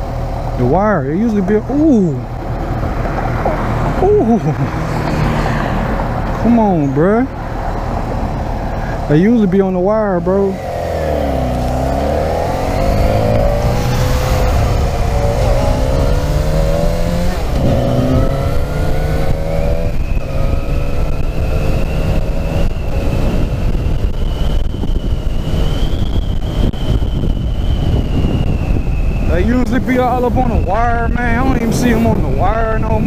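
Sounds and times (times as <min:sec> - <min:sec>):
motorcycle engine accelerating: 0:09.8 - 0:33.0.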